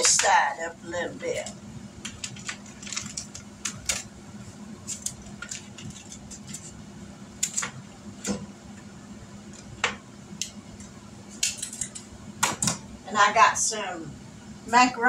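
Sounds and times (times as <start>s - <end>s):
faint steady hum: 0.0s - 15.0s
foil crinkling: 2.0s - 4.1s, 4.8s - 6.8s.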